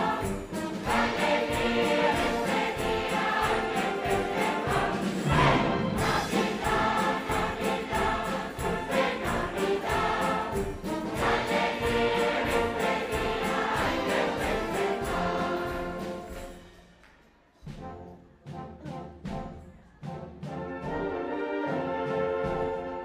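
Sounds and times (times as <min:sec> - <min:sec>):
choirs singing carols: 0:00.0 - 0:16.7
instrumental accompaniment: 0:00.0 - 0:23.0.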